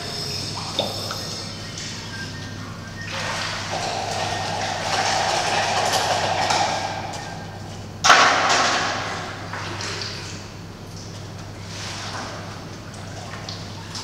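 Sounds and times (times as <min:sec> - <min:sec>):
water stirred and poured: 0:03.0 - 0:07.6.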